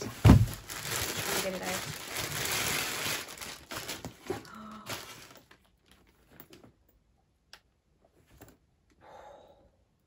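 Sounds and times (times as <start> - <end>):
plastic packaging rustling: 0.0 - 6.7.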